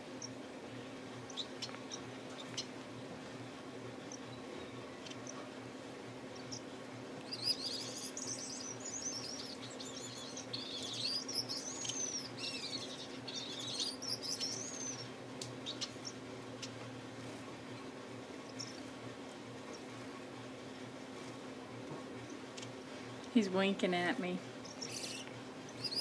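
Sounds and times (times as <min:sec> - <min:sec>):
steady low hum: 0:00.0 - 0:26.0
finch singing: 0:01.1 - 0:02.8, 0:03.9 - 0:05.6, 0:06.2 - 0:17.0, 0:17.7 - 0:20.1, 0:23.4 - 0:26.0.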